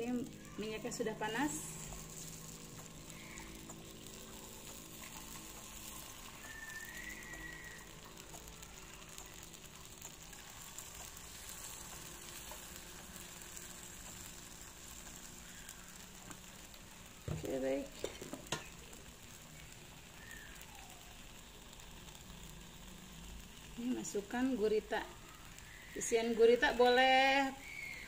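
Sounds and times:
batter sizzling in hot pan: 0.0 - 28.0.

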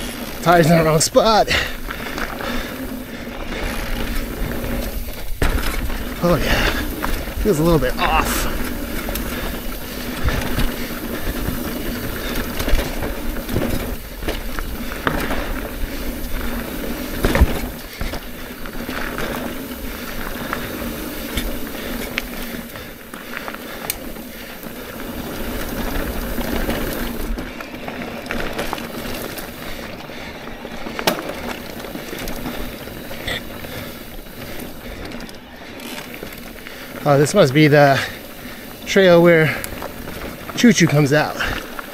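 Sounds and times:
bike tyres and rattling on dirt: 0.0 - 41.9.

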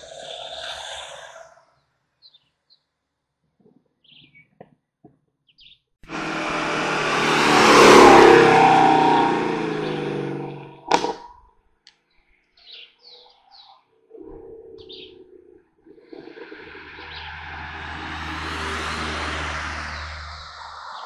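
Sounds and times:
race car engine passing: 6.1 - 11.2, 16.2 - 21.0
faint bird chirps: 12.1 - 16.0.

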